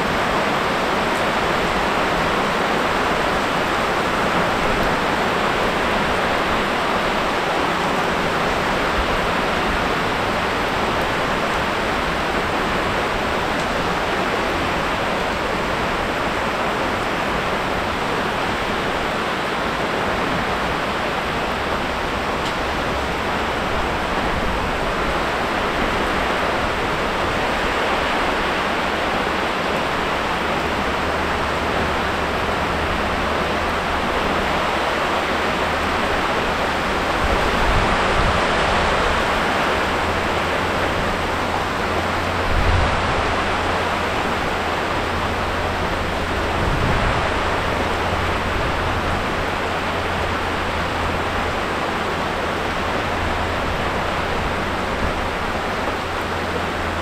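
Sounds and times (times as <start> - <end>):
heavy rain pouring: 0.0 - 57.0.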